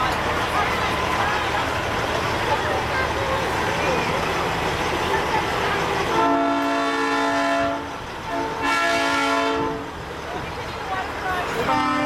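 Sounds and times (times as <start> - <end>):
truck engine rumble: 0.0 - 12.0
truck air horn chord: 6.2 - 9.8.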